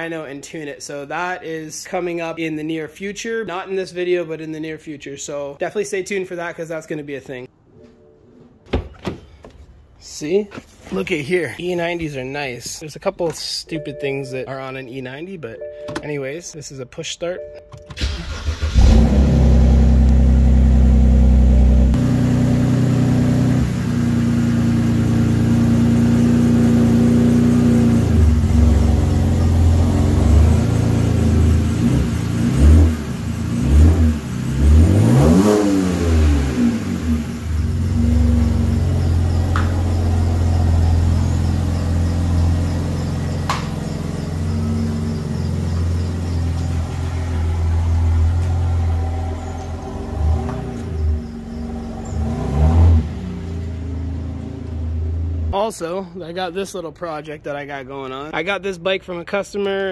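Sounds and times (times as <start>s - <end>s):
car engine idling: 18.0s - 55.5s
car pulling away slowly: 18.0s - 55.6s.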